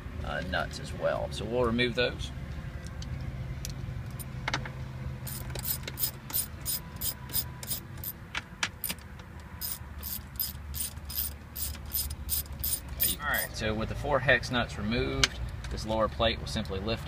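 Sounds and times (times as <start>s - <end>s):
ratchet pawl clicks: 5.3s - 8.2s, 9.6s - 13.2s.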